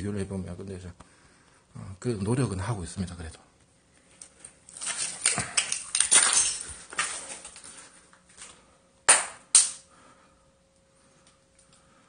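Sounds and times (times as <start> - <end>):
scuffle: 4.7 - 8.6
faint steady tone: 9.8 - 12.0.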